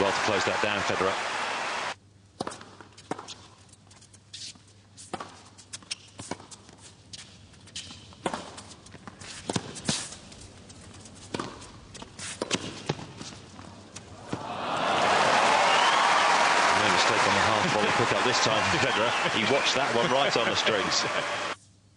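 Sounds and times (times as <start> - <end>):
crowd applause: 0.0 - 2.0, 14.2 - 21.6
tennis ball hitting racket: 11.3 - 13.4.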